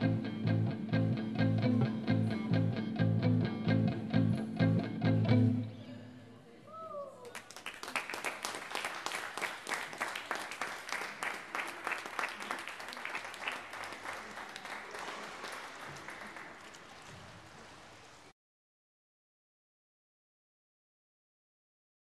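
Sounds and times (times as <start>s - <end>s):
audience applauding: 7.3s - 18.1s.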